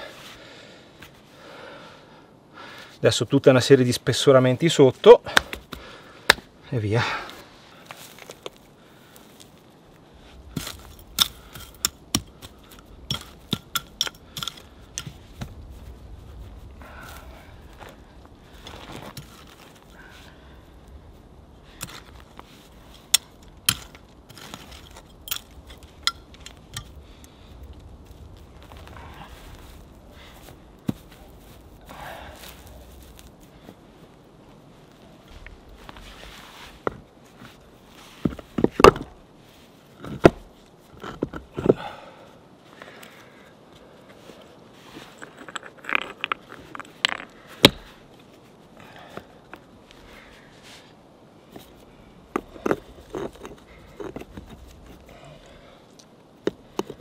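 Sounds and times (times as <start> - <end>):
hands working soil: 7.0 - 9.7, 21.7 - 27.3, 27.9 - 34.2, 34.8 - 42.1, 43.8 - 57.0.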